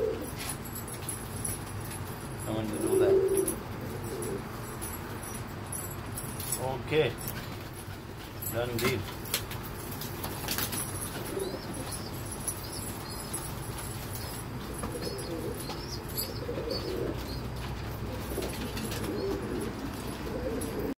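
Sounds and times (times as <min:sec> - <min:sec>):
pigeons cooing: 0:00.0 - 0:00.5, 0:02.5 - 0:05.7, 0:10.2 - 0:21.0
wings fluttering: 0:09.2 - 0:20.4.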